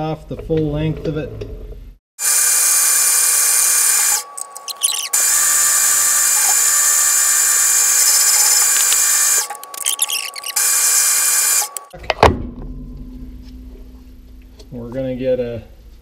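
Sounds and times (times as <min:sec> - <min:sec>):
metal lathe whining: 0:02.2 - 0:11.9.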